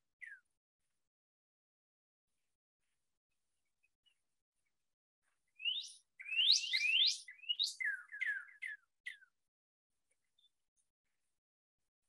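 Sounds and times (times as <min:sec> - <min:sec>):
bird song of whistled notes: 0:00.1 - 0:00.6, 0:03.6 - 0:09.4, 0:10.0 - 0:11.3.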